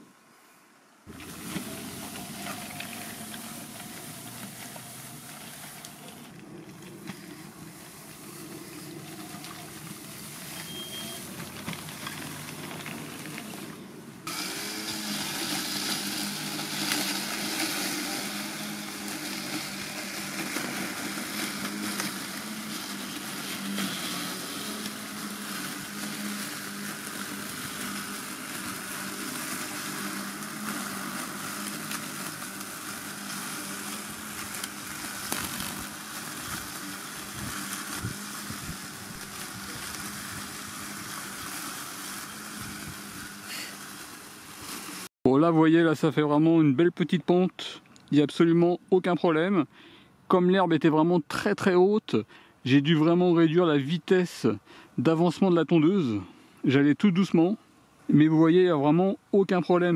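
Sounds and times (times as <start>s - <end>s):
continuous hiss: 0.0s - 59.9s
robot lawn mower humming: 1.0s - 45.1s.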